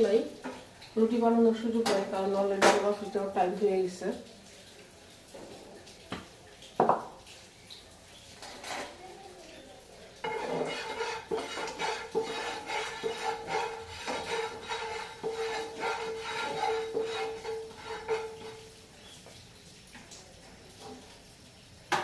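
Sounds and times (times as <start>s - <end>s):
spatula scraping frying pan: 8.4s - 9.0s, 10.2s - 18.8s
spatula knocking against pan: 10.2s - 18.6s.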